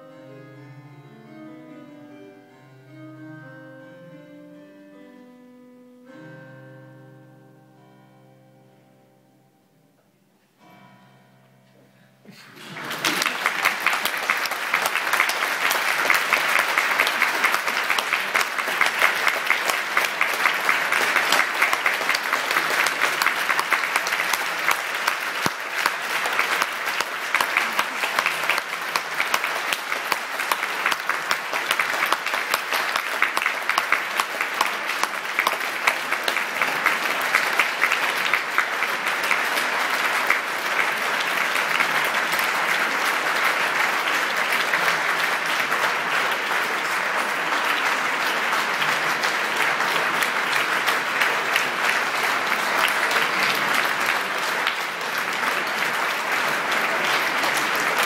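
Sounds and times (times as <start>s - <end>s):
audience applauding: 12.4s - 58.0s.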